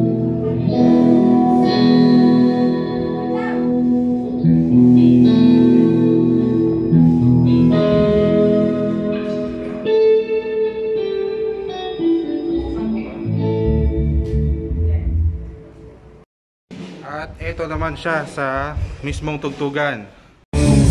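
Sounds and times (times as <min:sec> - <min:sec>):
electric guitar over speakers: 0:00.0 - 0:15.7, 0:20.6 - 0:20.9.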